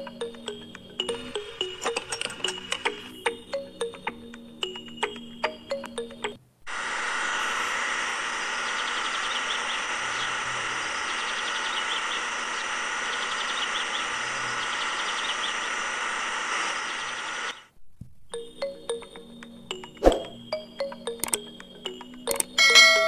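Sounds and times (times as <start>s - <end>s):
electric pump motor whining: 6.7s - 17.7s
bird chirps: 8.6s - 15.8s.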